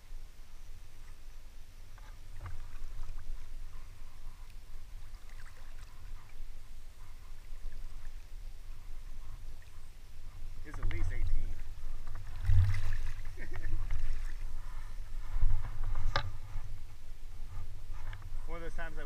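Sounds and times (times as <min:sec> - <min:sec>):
river water lapping and trickling: 0:00.0 - 0:19.0
faint small splashes: 0:01.9 - 0:08.4, 0:10.6 - 0:15.0.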